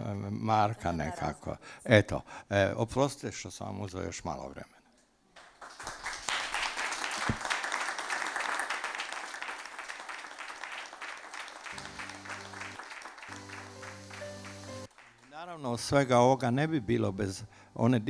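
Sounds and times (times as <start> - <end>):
audience applauding: 5.4 - 15.8
soft music with long held notes: 11.7 - 18.0.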